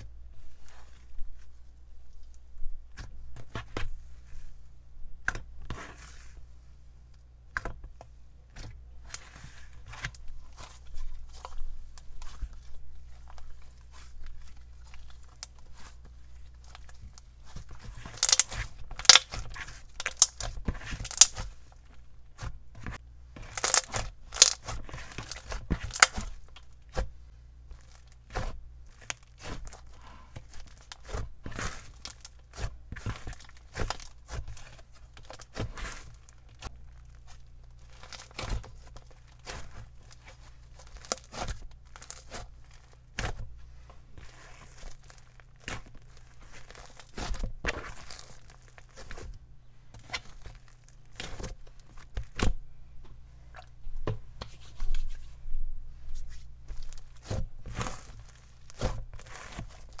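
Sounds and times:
hands squishing sticky slime: 8.5 - 27.2, 27.8 - 52.6, 56.2 - 60.0.

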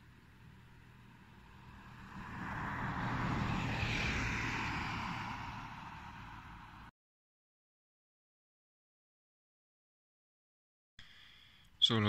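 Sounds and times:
vehicle passing by: 0.3 - 6.9.

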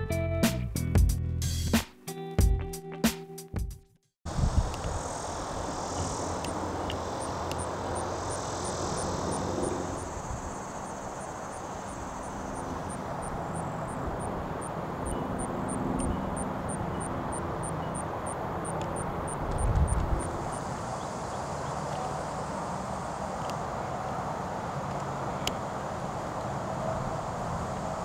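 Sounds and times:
insect chirping in pulses: 4.3 - 23.3.

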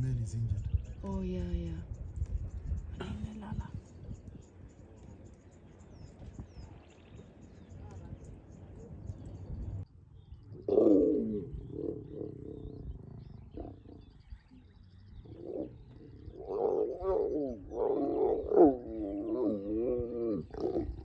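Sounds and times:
large animal calling: 15.2 - 21.0.

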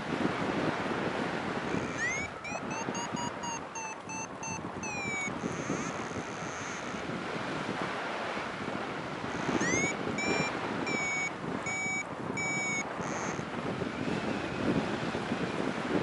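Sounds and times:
wind rushing over microphone: 0.0 - 16.0
variometer beeping: 1.7 - 7.0, 9.3 - 13.4.

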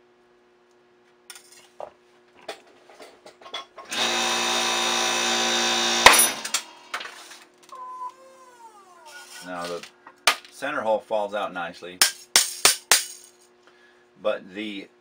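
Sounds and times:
powered press running: 3.9 - 6.9
sharp crack of metal shearing: 3.9 - 7.4.

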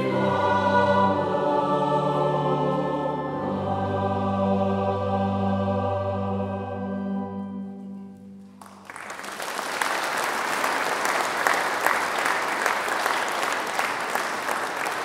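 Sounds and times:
choir holding a chord: 0.0 - 8.1
audience applause: 8.6 - 15.0.

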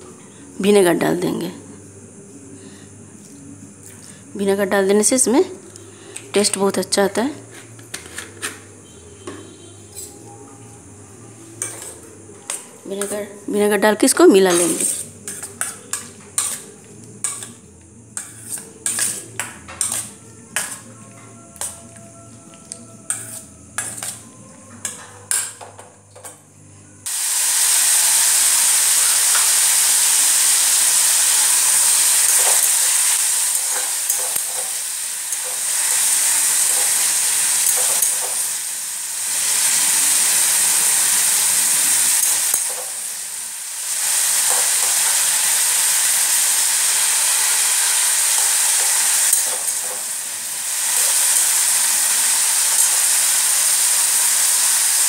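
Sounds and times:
vegetables sizzling in a pan: 3.9 - 24.2, 27.0 - 55.0
metal spatula stirring: 14.5 - 22.0, 22.6 - 25.6.

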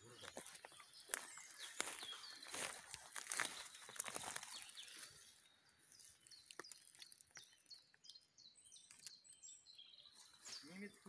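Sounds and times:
footsteps on dry leaves: 0.0 - 7.8, 10.1 - 11.0
small birds chirping: 0.0 - 11.0.

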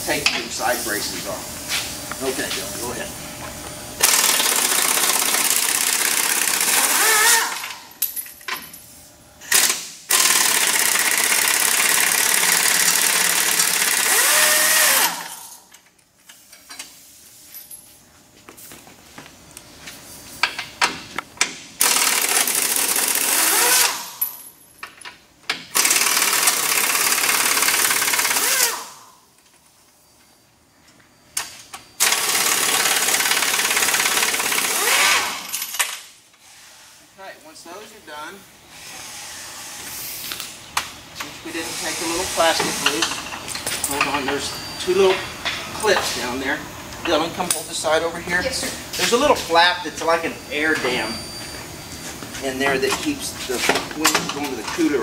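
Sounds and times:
air wrench running with hiss: 4.0 - 7.8, 9.4 - 15.6, 21.8 - 24.3, 25.7 - 29.1, 32.0 - 35.7, 41.5 - 43.3.

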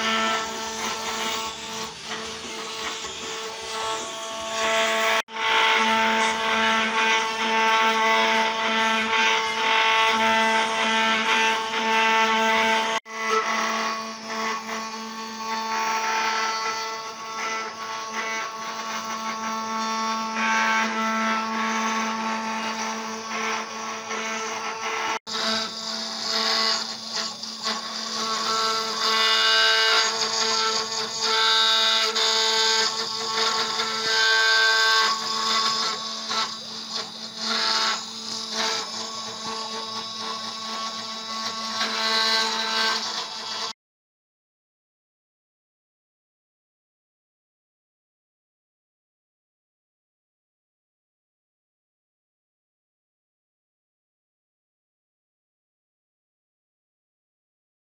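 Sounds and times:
cnc router spindle whine: 0.0 - 43.8
router bit cutting wood: 0.0 - 43.8.

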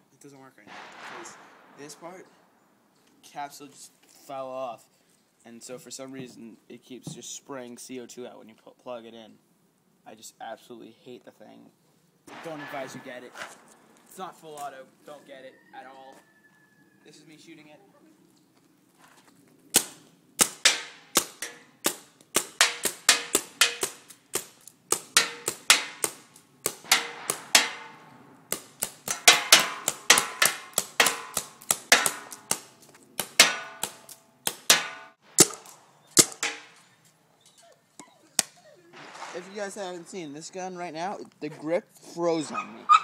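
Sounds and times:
paintball gun shots: 0.7 - 2.4, 12.3 - 13.8, 19.7 - 36.8, 39.0 - 39.9.

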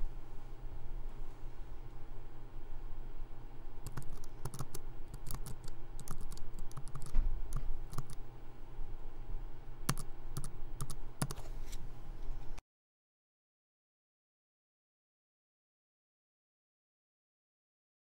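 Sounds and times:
steady low hum: 0.0 - 12.6
keyboard typing clicks: 3.8 - 8.2, 9.9 - 11.4.

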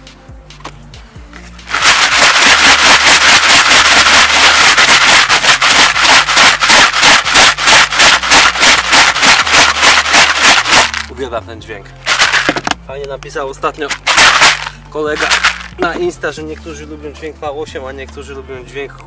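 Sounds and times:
bait rattling in plastic bucket: 1.7 - 11.1, 12.1 - 12.8, 13.9 - 16.0.

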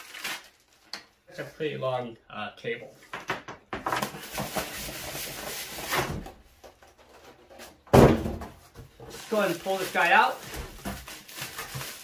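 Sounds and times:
loud thump: 7.9 - 8.6.

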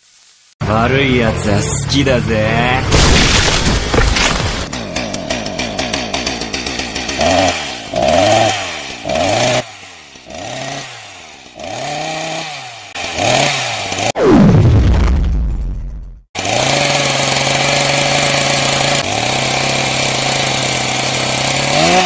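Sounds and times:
chainsaw engine revving: 3.4 - 14.2, 16.4 - 22.0.

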